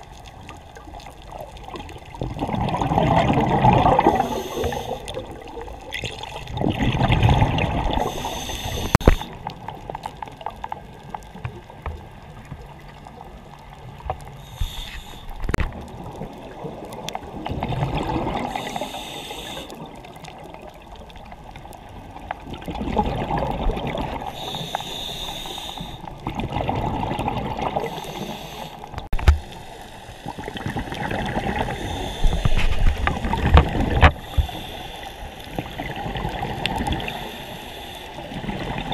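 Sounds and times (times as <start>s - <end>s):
water gurgling and bubbling: 0.0s - 10.8s, 15.3s - 19.0s, 22.1s - 24.4s, 26.1s - 28.3s, 30.3s - 34.6s, 35.4s - 37.3s, 38.2s - 38.9s.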